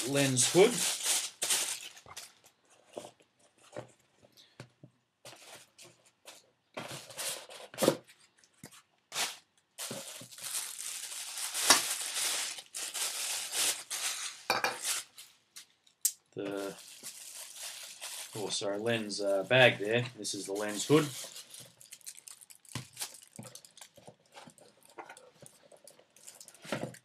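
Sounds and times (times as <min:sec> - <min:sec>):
plastic bags crinkling: 0:00.0 - 0:02.6, 0:09.1 - 0:27.0.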